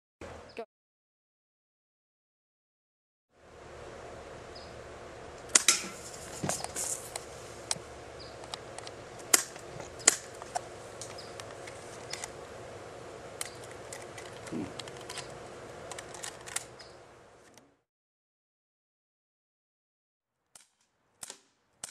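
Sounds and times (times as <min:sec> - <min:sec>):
steady hiss: 0:03.4 - 0:16.0
cans popping: 0:08.5 - 0:12.3
bb guns firing: 0:09.3 - 0:10.4.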